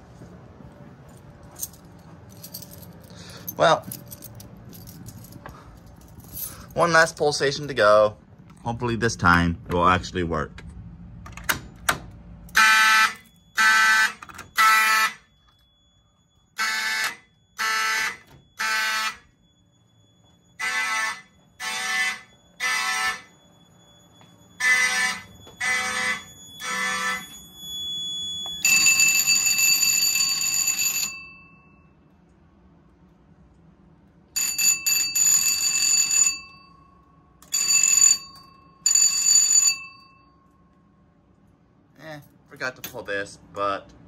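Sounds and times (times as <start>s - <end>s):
fire alarm horn blasts: 12.4s - 32.1s
steady high-pitched alarm tone: 12.5s - 32.1s.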